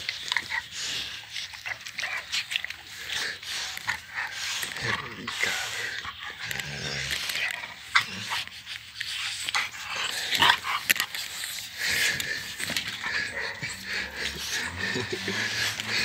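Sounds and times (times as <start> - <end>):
dog panting: 0.0 - 16.0.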